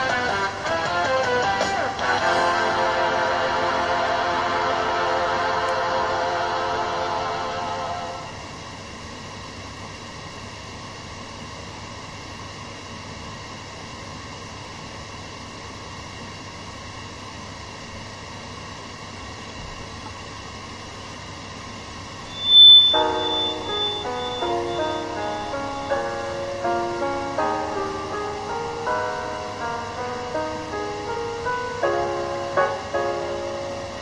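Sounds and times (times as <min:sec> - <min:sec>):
backing music with held notes: 0:00.0 - 0:08.2, 0:22.3 - 0:34.0
faint hum: 0:00.0 - 0:34.0
loud burst with ringing tone: 0:22.3 - 0:30.0
background hiss: 0:22.3 - 0:34.0.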